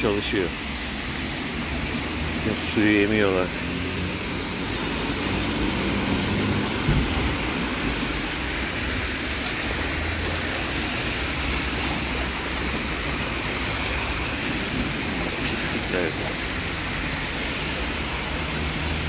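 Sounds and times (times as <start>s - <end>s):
rainwater rushing into storm drain: 0.0s - 19.0s
short thump: 6.8s - 7.4s.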